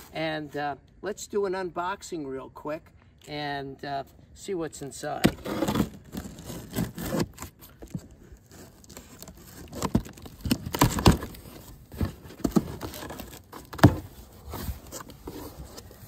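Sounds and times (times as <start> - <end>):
knife cutting tape and cardboard: 5.2 - 14.1
cardboard scraping and rustling: 5.2 - 16.0.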